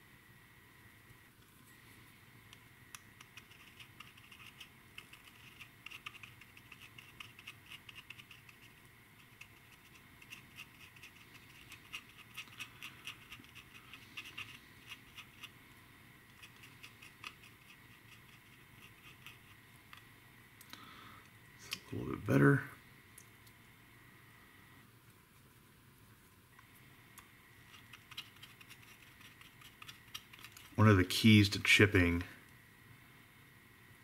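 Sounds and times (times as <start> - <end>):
paintbrush scratching plastic: 3.2 - 15.6, 16.3 - 19.6, 27.6 - 30.8.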